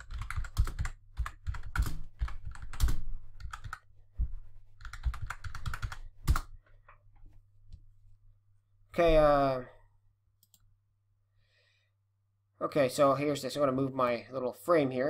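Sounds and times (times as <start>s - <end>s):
keyboard typing: 0.0s - 3.9s, 4.8s - 7.0s.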